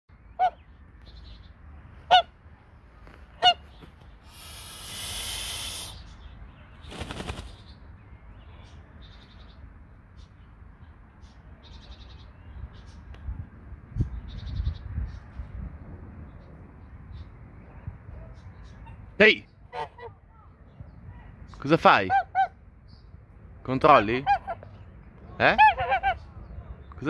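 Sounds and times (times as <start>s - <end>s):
goose hissing: 4.2s - 6.2s
goose honking: 25.5s - 26.2s.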